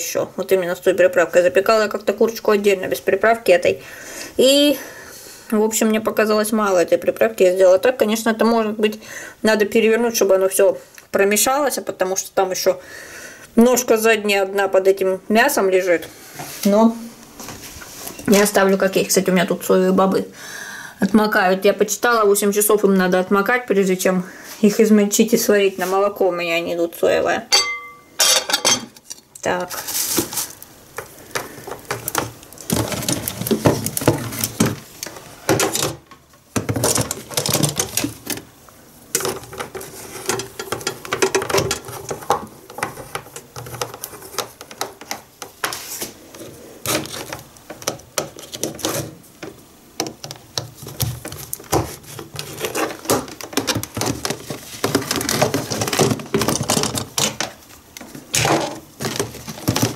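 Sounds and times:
objects handled on kitchen counter: 27.5 - 38.5, 39.1 - 59.9.

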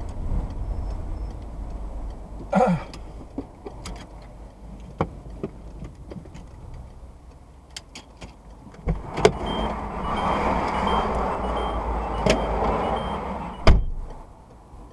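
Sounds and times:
road traffic passing: 0.0 - 14.9
faint short high beeps: 9.4 - 14.0.

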